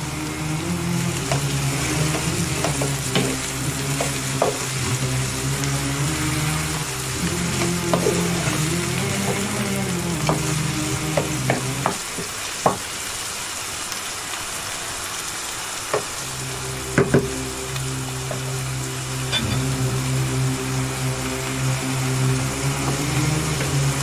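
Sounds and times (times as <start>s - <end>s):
vegetables sizzling in a pan: 0.0s - 24.0s
wooden spoon knocking on pan: 1.2s - 4.8s, 10.2s - 12.8s.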